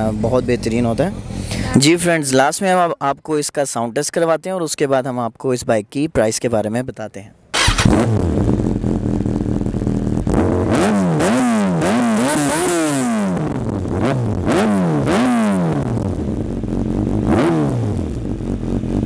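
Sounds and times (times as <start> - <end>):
motorcycle engine idling: 0.0 - 1.8, 7.6 - 10.3, 16.0 - 17.3, 18.0 - 19.0
motorcycle engine revving: 7.6 - 19.0.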